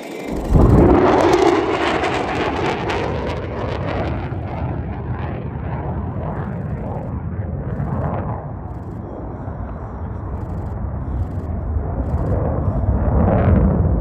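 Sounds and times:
fighter jet flying away: 0.0s - 14.0s.

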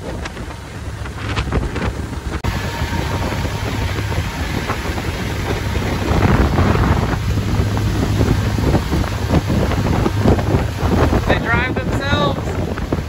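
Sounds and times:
water rushing: 0.0s - 13.0s
wind buffeting microphone: 0.0s - 13.0s
diesel engines droning: 2.1s - 13.0s.

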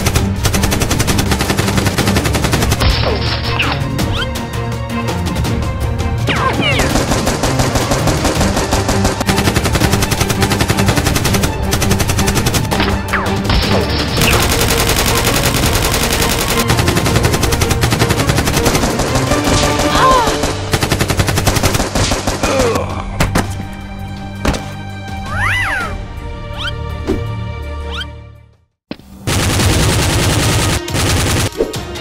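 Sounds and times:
background music: 0.0s - 32.0s
automatic gunfire bursts: 6.8s - 12.6s, 14.2s - 22.4s.

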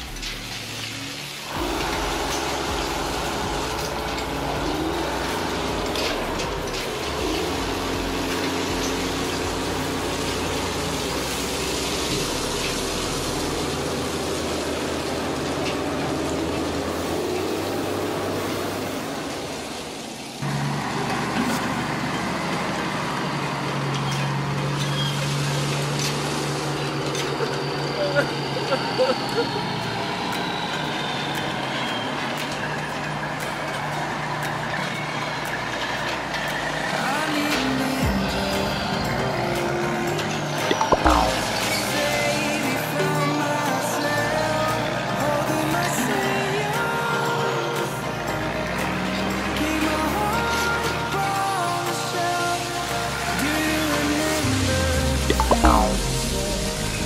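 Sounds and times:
toy excavator motors whirring: 0.0s - 13.4s
engine-like running noise: 0.0s - 46.4s.

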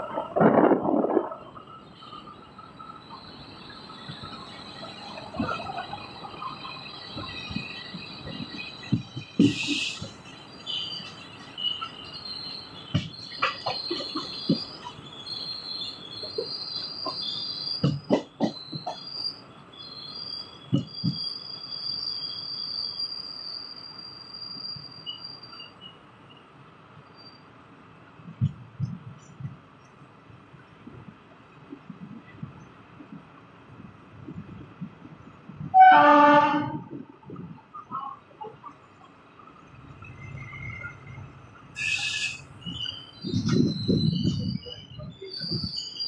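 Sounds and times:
wheels clunking over rail joints: 0.0s - 19.8s
train wheels squealing: 1.4s - 27.5s, 37.8s - 46.0s
short hiss: 9.4s - 10.1s, 41.8s - 42.4s.

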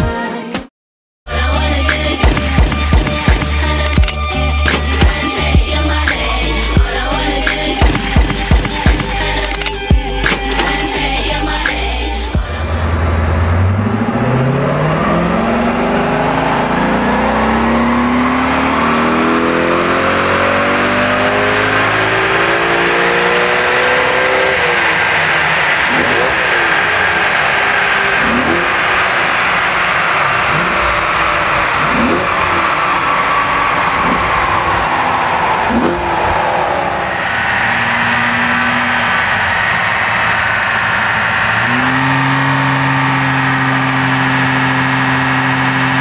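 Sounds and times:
car engine revving at full throttle: 1.3s - 46.0s.

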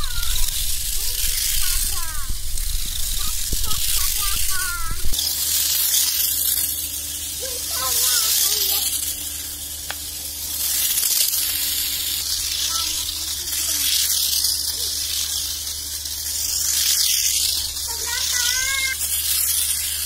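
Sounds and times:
child calling out: 0.0s - 0.5s, 7.4s - 8.9s
toy car motors whirring: 0.0s - 20.0s.

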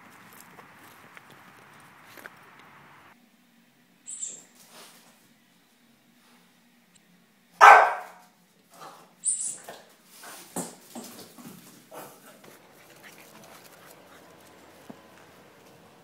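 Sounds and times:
puppy barking: 7.6s - 8.2s.

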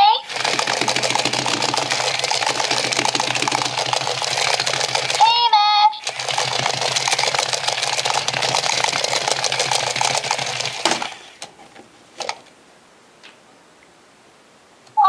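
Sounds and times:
toy motor and gears clicking: 0.0s - 11.5s.

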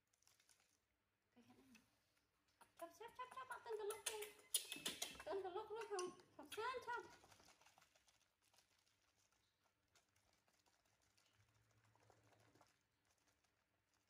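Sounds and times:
faint small clicks and taps: 1.6s - 10.4s.

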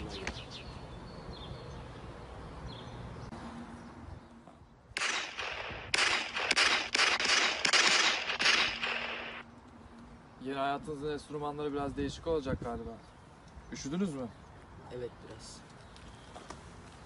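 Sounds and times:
rapid gunfire: 5.0s - 9.4s.

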